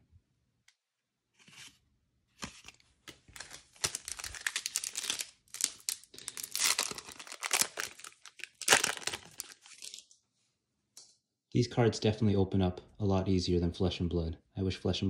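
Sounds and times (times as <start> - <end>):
foil wrapper tearing and crinkling: 2.6 - 10.1.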